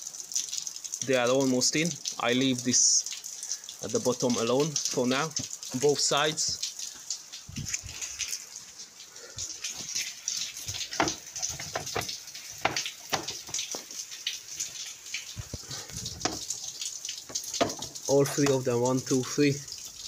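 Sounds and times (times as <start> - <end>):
plastic panels clicking and scraping: 10.6 - 13.9.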